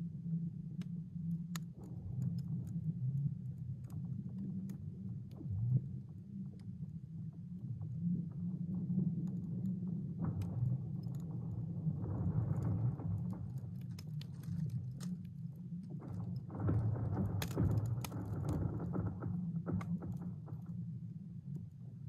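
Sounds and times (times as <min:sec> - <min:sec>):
ice cracking clicks and ticks: 0:00.8 - 0:05.4, 0:09.1 - 0:20.9
thawing lake ice rumbling: 0:09.8 - 0:21.0.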